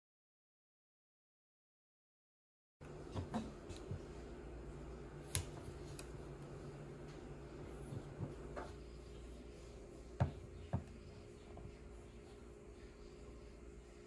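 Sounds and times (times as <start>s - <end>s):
steady low hum: 2.8s - 14.0s.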